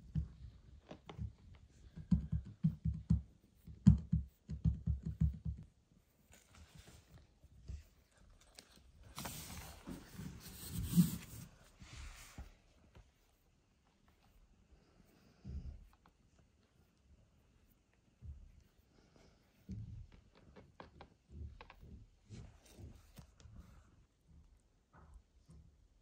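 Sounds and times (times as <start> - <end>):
hand rustling cat fur: 5.6 - 24.2.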